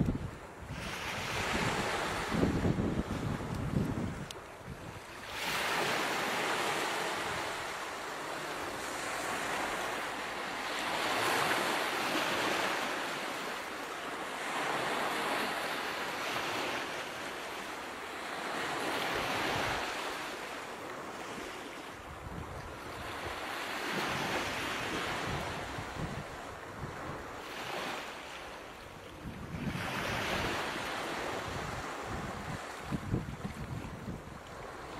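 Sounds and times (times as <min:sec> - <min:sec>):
ocean waves washing in: 0:00.0 - 0:21.9.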